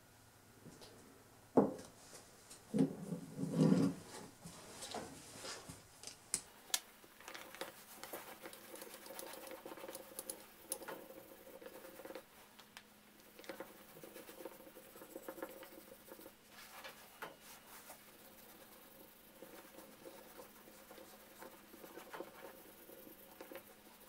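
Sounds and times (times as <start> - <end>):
pad scratching on wood: 7.5 - 12.3, 13.2 - 24.0.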